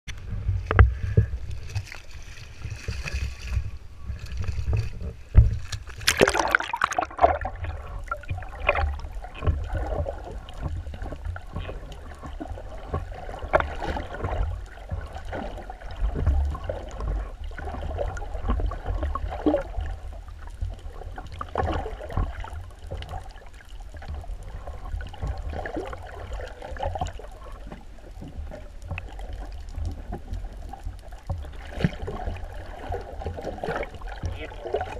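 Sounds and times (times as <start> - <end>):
underwater bubbling and gurgling: 0.1 - 34.9
underwater low rumble: 0.1 - 34.9
splash into seawater: 5.7 - 10.4.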